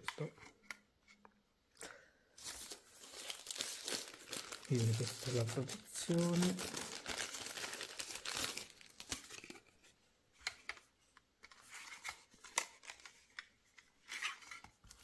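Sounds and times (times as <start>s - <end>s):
plastic packaging crinkling: 2.4s - 9.7s.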